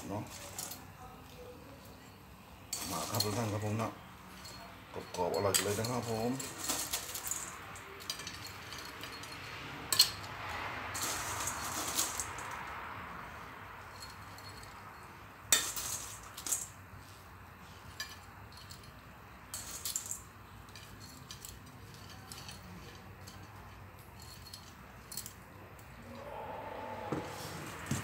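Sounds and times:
metal tongs clinking on steel: 0:04.4 - 0:10.3.

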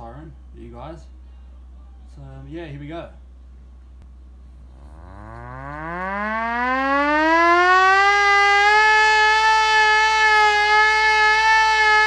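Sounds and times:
hand-cranked air raid siren wailing: 0:04.7 - 0:12.0.

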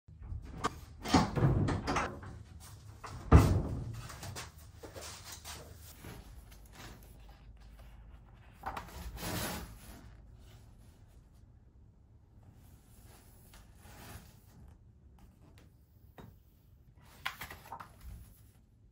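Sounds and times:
greenhouse door banging shut: 0:00.2 - 0:02.4, 0:03.0 - 0:04.4
book pages turning: 0:05.2 - 0:10.9, 0:17.0 - 0:18.6.

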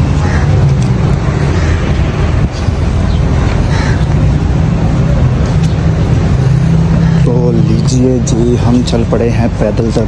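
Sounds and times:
street noise: 0:00.0 - 0:10.0.

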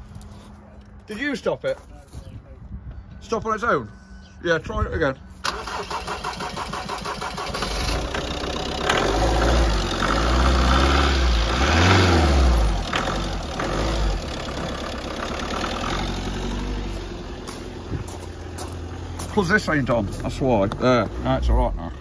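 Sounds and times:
van engine cranking and revving: 0:05.4 - 0:22.0.

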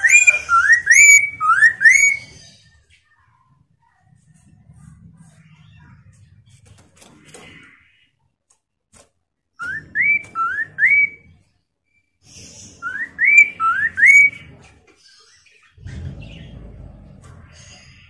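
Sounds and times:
bird whistling upslurred notes: 0:00.0 - 0:02.3, 0:12.8 - 0:14.4
low rumble: 0:15.8 - 0:18.0.

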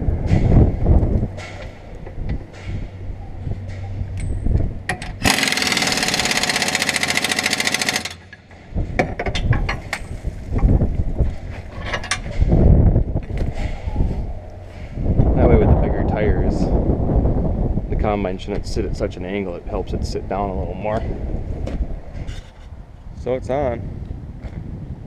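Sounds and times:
pneumatic air wrench rattling: 0:04.9 - 0:08.5.

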